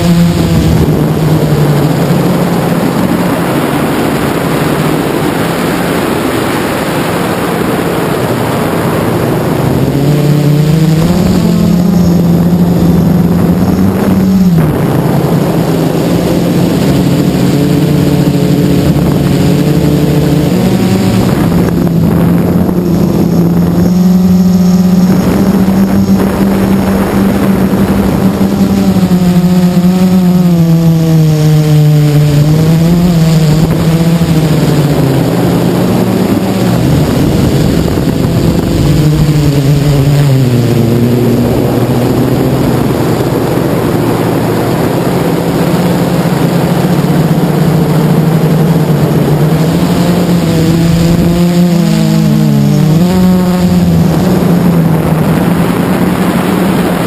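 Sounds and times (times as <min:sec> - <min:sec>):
drone motors buzzing: 0:00.0 - 0:57.0.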